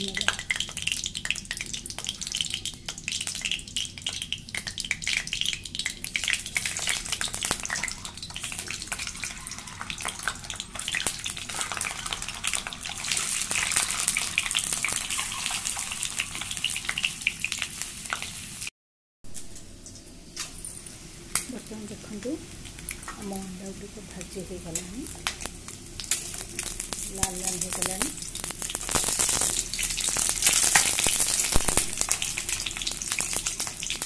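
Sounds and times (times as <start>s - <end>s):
oil crackling and sizzling: 0.0s - 18.7s, 19.3s - 34.0s.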